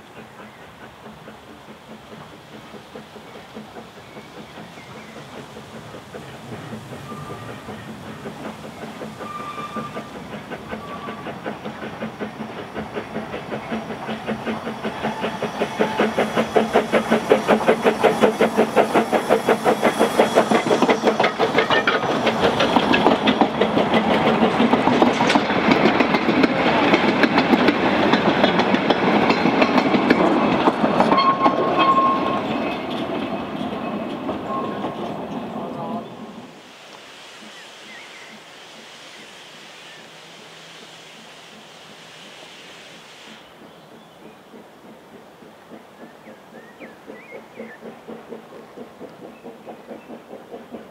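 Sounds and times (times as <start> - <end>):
steam locomotive exhaust beats: 0.0 - 50.9
train wagons clattering over rail joints: 0.5 - 36.6.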